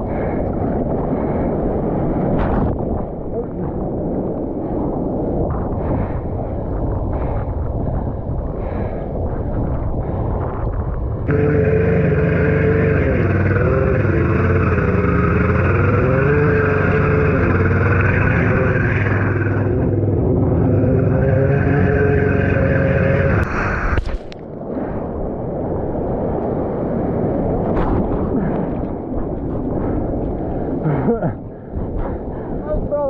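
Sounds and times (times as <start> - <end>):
jet ski engine running: 11.3 - 24.0.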